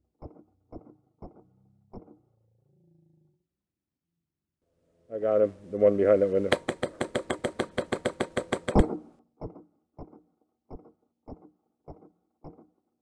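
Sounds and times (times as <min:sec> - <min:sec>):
airsoft rifle rapid burst: 0:06.4 - 0:12.6.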